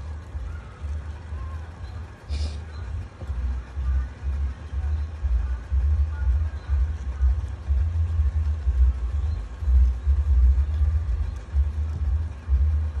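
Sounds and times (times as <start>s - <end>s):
low uneven rumble: 0.0s - 13.0s.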